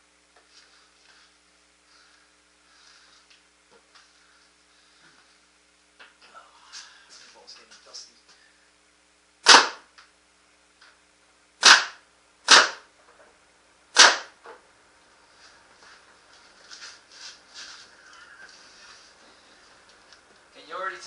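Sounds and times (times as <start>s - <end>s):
paintball marker shots: 9.4s - 9.9s, 11.6s - 12.9s, 14.0s - 14.4s.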